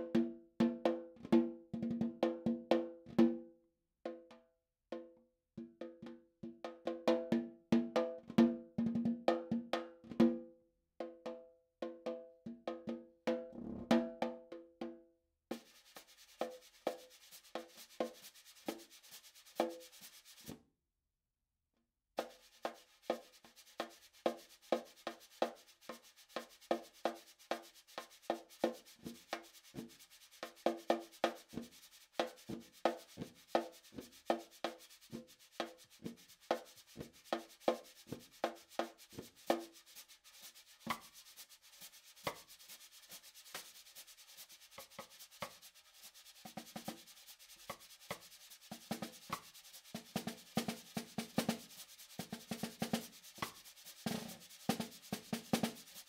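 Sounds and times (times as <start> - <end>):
rubbing hiss on drum head: 15.5 - 20.5, 22.2 - 56.0
hand strikes on snare drum: 50.1 - 56.0.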